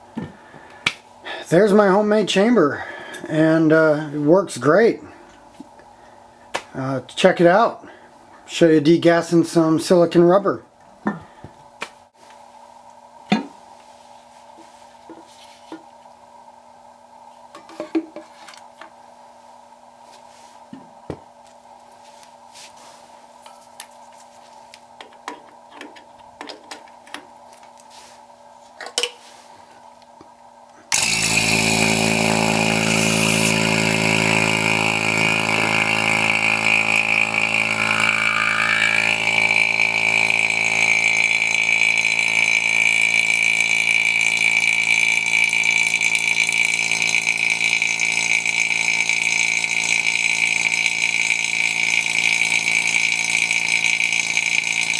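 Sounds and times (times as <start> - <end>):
vacuum pump whining: 30.9 - 54.9.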